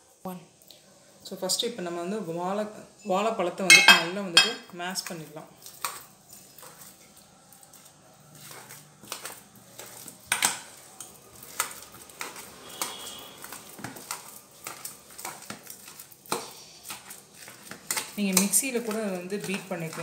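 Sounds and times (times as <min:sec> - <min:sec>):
metal utensils clinking: 0:03.6 - 0:04.6.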